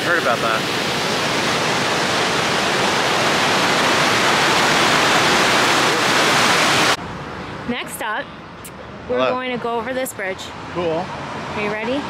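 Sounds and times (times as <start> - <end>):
river water pouring over dam: 0.0 - 7.0.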